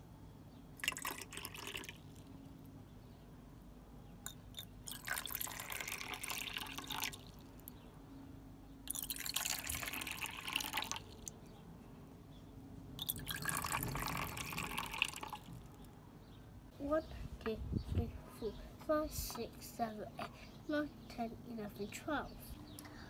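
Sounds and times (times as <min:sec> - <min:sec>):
water pouring into cups: 0:00.8 - 0:02.3, 0:04.3 - 0:07.7, 0:08.9 - 0:11.3, 0:13.0 - 0:15.7.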